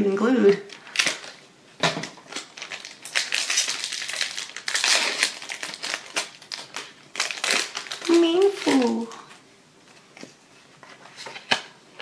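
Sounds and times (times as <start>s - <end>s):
foil wrapper crinkling: 0.6s - 1.4s, 2.0s - 9.4s.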